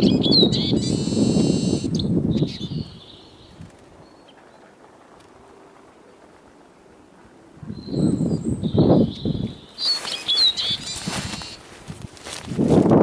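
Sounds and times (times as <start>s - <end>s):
songbirds chirping: 0.0s - 5.1s, 5.9s - 11.8s
crunching and rustling dry grass: 9.0s - 13.0s.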